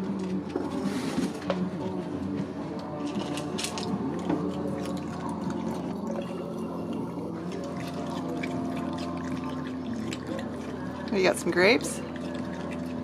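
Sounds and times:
raccoon crunching dry kibble: 0:00.0 - 0:13.0.

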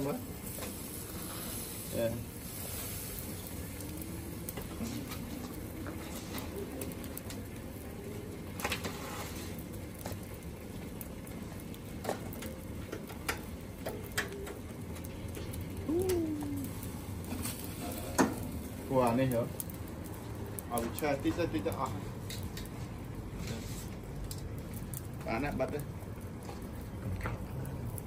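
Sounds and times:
dove cooing: 0:15.8 - 0:16.9.

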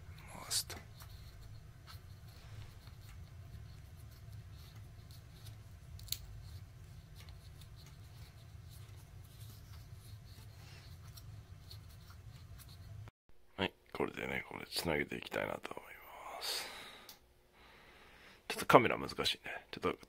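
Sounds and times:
low steady hum: 0:00.0 - 0:19.9.

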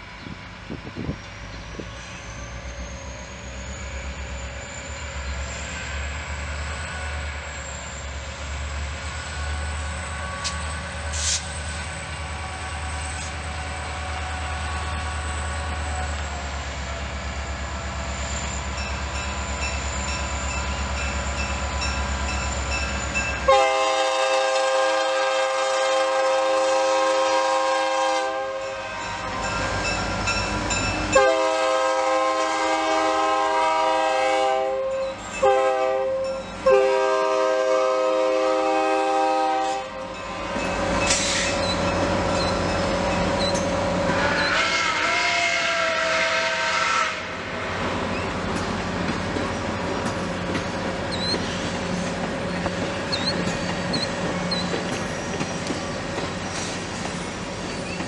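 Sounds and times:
diesel locomotive rumbling: 0:00.0 - 0:58.0
multi-chime train horn: 0:22.8 - 0:42.0, 0:42.6 - 0:47.3.

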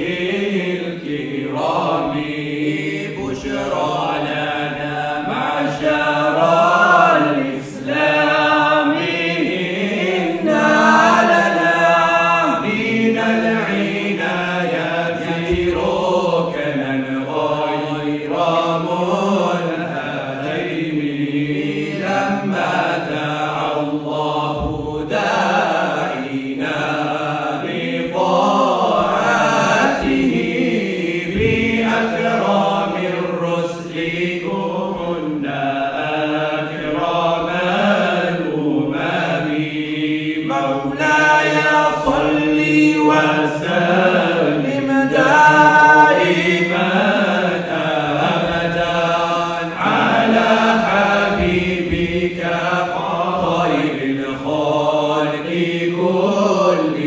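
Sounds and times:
male vocal group singing: 0:00.0 - 0:57.0.

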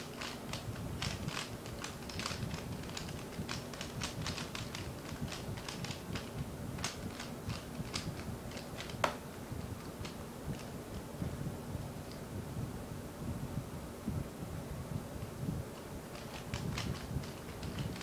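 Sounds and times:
puzzle cube plastic clicks: 0:00.0 - 0:09.2, 0:16.1 - 0:18.0.

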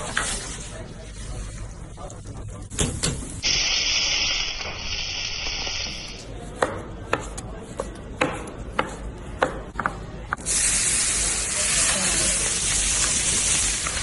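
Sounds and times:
steak sizzling on a grill: 0:03.4 - 0:06.2, 0:10.5 - 0:14.0.

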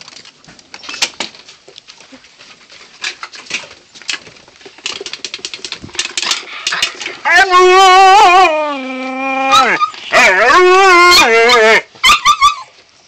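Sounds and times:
dog claws clicking on wooden boards: 0:03.0 - 0:07.2.

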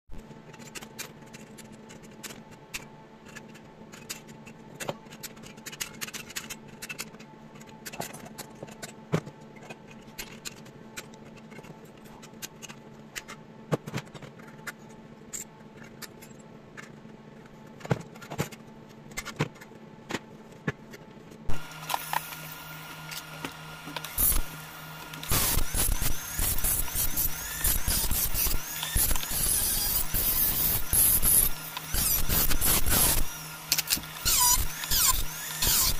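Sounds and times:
steady low hum: 0:00.1 - 0:35.9
rotary tool motor running: 0:21.5 - 0:35.9.

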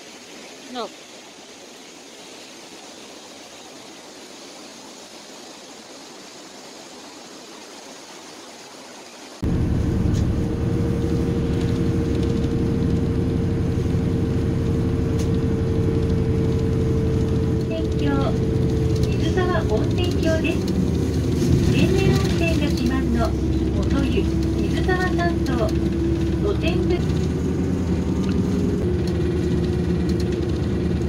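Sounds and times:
faint outdoor hiss: 0:00.0 - 0:09.4
car engine hum: 0:09.4 - 0:31.0
road rumble inside moving car: 0:09.4 - 0:31.0.

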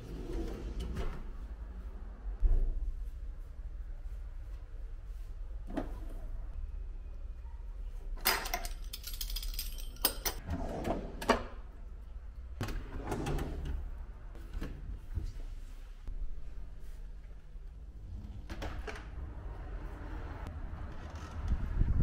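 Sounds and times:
cutlery clattering in drawer: 0:08.2 - 0:10.4
kitchen drawers sliding: 0:10.4 - 0:11.5, 0:12.6 - 0:15.3.

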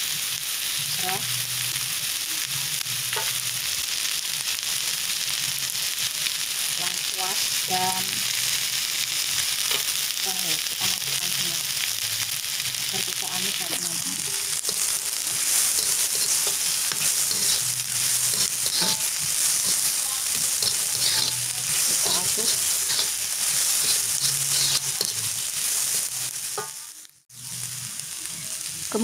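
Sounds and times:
vegetables sizzling in oil: 0:00.0 - 0:29.0
metal spatula scraping a wok: 0:13.2 - 0:26.8.

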